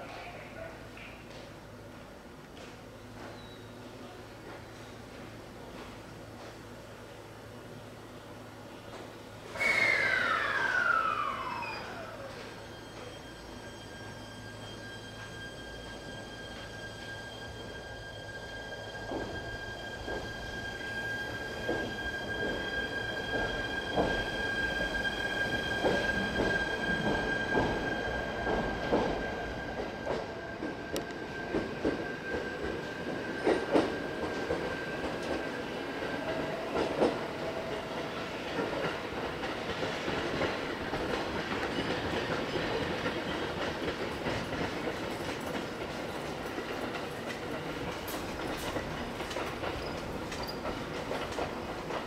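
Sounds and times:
train wheels clacking on rail joints: 0:21.6 - 0:52.0.

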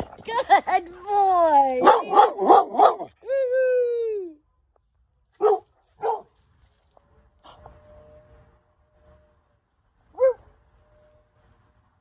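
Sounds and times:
dog barking and yelping: 0:01.8 - 0:03.1, 0:05.4 - 0:06.3.

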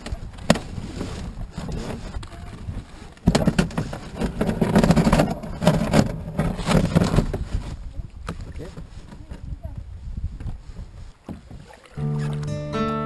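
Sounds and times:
paddle knocking against hull: 0:00.0 - 0:07.5, 0:11.2 - 0:12.5
paddle strokes through water: 0:00.0 - 0:12.6.

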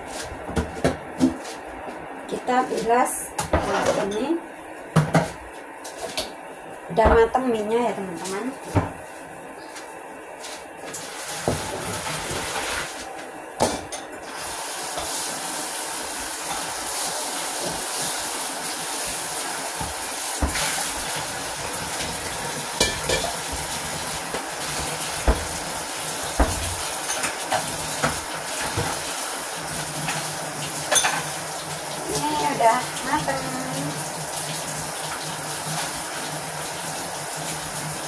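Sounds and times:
oil sizzling in a wok: 0:10.8 - 0:13.2, 0:14.2 - 0:38.0.

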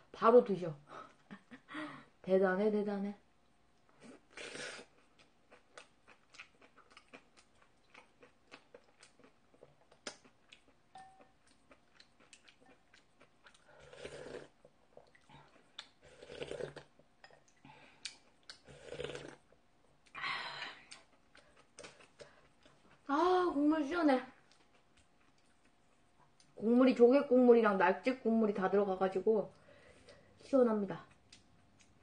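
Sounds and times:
wet chewing mouth clicks: 0:04.4 - 0:19.4
slurping broth: 0:13.6 - 0:16.9, 0:18.5 - 0:19.4.

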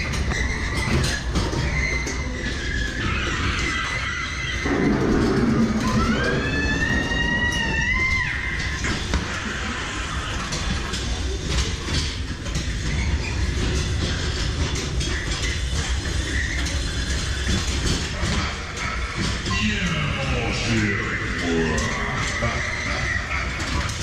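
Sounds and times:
ride car rumbling on track: 0:00.0 - 0:24.0
rising squeal: 0:00.4 - 0:10.3.

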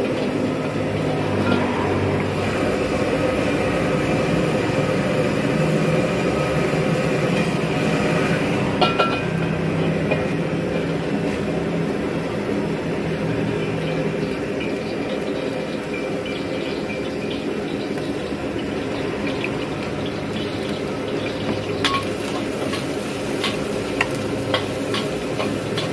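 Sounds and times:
metal wok clanking on grate: 0:00.0 - 0:03.7, 0:05.9 - 0:11.6, 0:18.9 - 0:25.9
gas burner roaring: 0:00.0 - 0:25.9.

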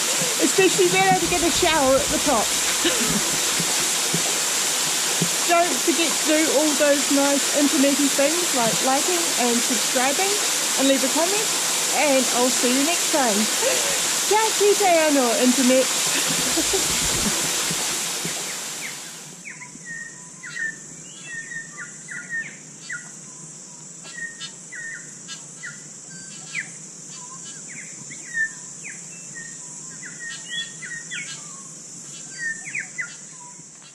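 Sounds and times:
waterfall rushing: 0:00.0 - 0:19.4
high-pitched hiss: 0:00.0 - 0:21.7
birds chirping: 0:00.0 - 0:23.5.

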